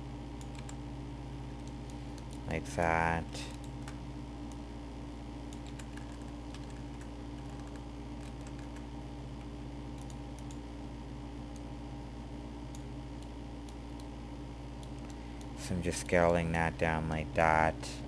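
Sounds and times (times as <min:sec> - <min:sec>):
low electrical hum: 0:00.0 - 0:18.0
computer keyboard and mouse clicks: 0:00.4 - 0:00.8, 0:05.5 - 0:08.9, 0:09.9 - 0:10.6.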